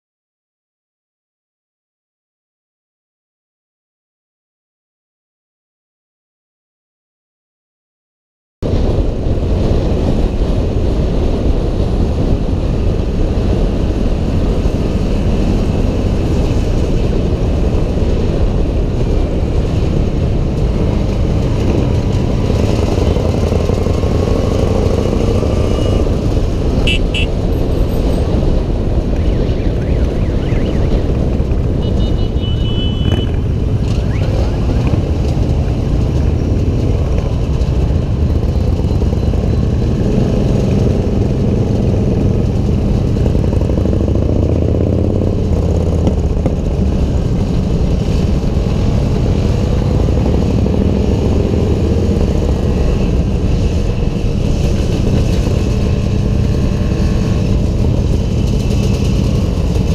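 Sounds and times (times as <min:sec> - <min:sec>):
wind rumble on microphone: 0:08.6 - 0:59.9
motorcycle engines running: 0:08.7 - 0:59.9
brief high tones: 0:26.9 - 0:27.4.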